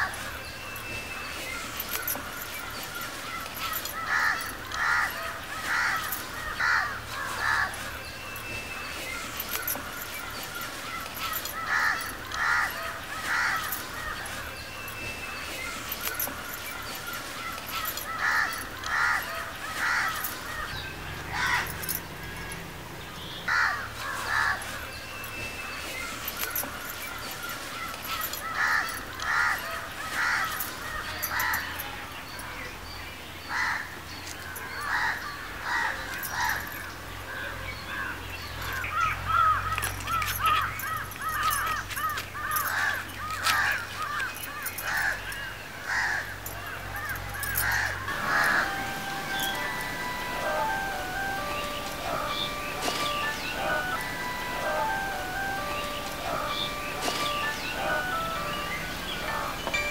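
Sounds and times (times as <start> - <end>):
crows cawing: 4.0 - 7.8, 11.5 - 13.8, 18.1 - 20.3, 21.3 - 21.7, 23.5 - 24.6, 28.4 - 30.6, 33.5 - 33.9, 34.8 - 36.6, 38.9 - 46.4, 47.0 - 49.0.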